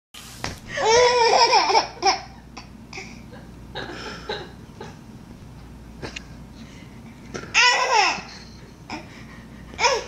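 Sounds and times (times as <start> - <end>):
baby laughing: 0.8 - 3.1, 7.5 - 10.0.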